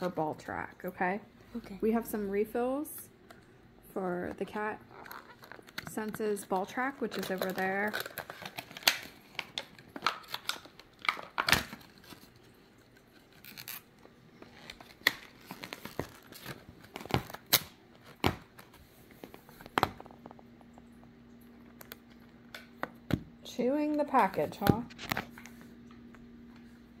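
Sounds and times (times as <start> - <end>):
packaging snipped and torn: 7.0 - 12.4, 13.0 - 18.7.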